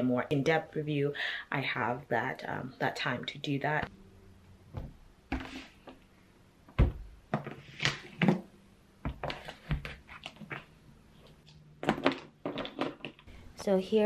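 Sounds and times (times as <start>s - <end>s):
books handling and sliding: 4.7s - 6.0s, 9.1s - 13.2s
books thudding on wooden table: 6.7s - 8.4s.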